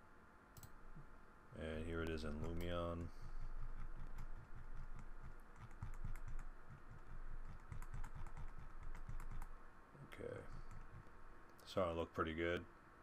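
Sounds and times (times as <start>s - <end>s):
computer keyboard typing: 2.0s - 2.8s, 3.6s - 9.5s, 10.5s - 11.1s.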